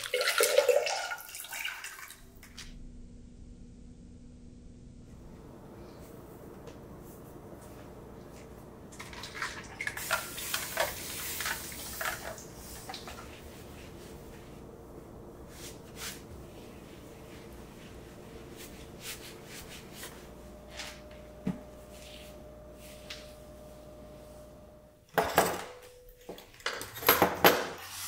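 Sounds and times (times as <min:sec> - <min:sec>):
cloth wiping stone countertop: 0:10.0 - 0:24.6.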